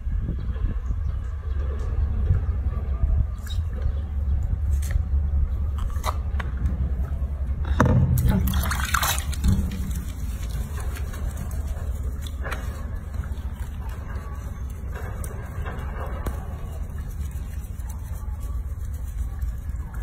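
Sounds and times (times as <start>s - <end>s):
low rumble: 0.0s - 20.0s
water sloshing in sink: 8.2s - 13.8s.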